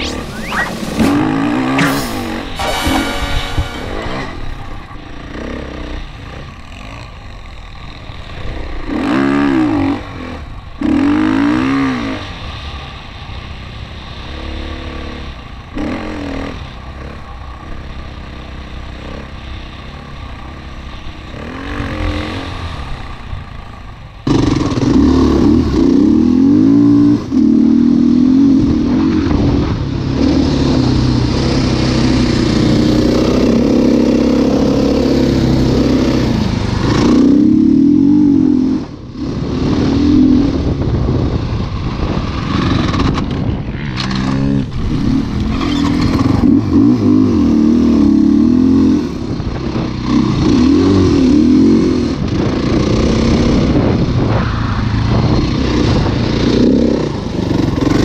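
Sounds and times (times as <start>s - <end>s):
dirt bike engine revving: 0.0s - 12.6s, 14.1s - 23.6s, 24.2s - 29.4s, 42.2s - 58.0s.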